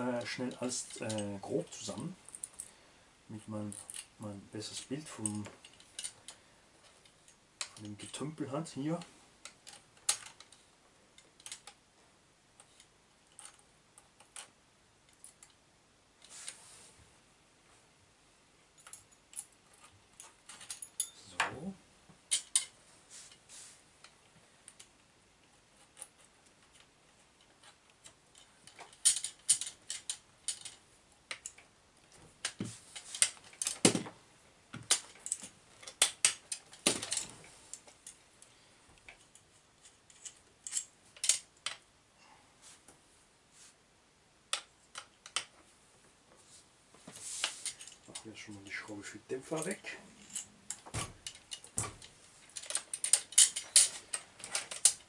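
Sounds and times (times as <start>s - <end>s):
metal parts clinking: 0.2s - 2.7s, 3.7s - 4.1s, 5.1s - 6.4s, 18.8s - 21.6s, 22.3s - 22.8s, 25.8s - 31.6s, 32.4s - 34.0s, 34.9s - 38.2s, 39.0s - 41.8s, 47.5s - 48.3s, 49.4s - 55.0s
parts knocking against frame: 33.6s - 35.0s.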